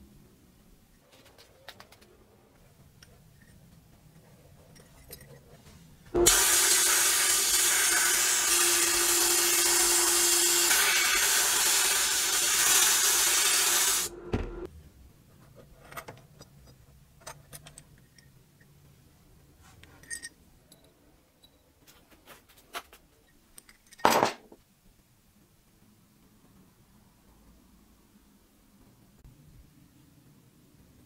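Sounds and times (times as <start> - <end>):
sandblasting gun hissing: 6.2 - 14.1.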